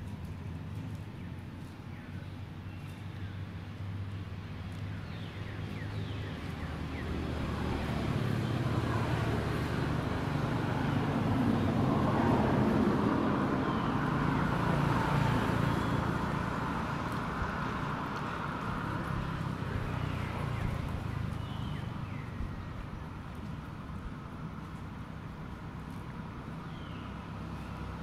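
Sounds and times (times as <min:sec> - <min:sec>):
motor vehicle passing: 0:00.0 - 0:28.0.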